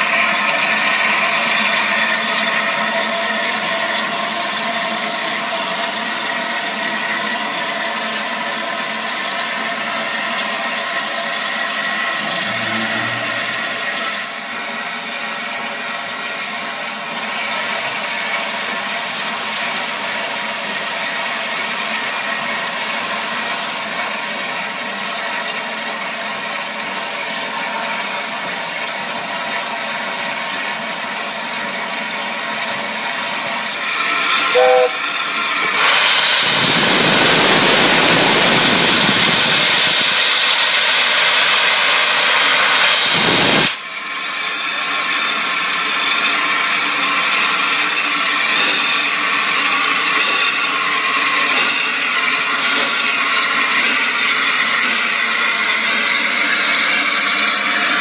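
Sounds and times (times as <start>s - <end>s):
loud steam blowing off: 0.0s - 58.0s
steady steam hiss: 33.0s - 58.0s
short whistle note: 34.4s - 35.1s.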